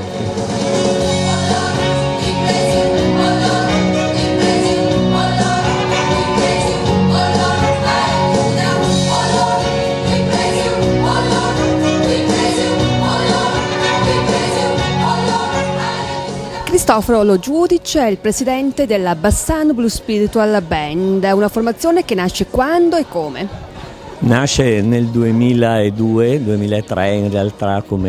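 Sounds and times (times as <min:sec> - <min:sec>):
gospel choir singing: 0:00.0 - 0:17.5
instrumental accompaniment: 0:00.0 - 0:18.4.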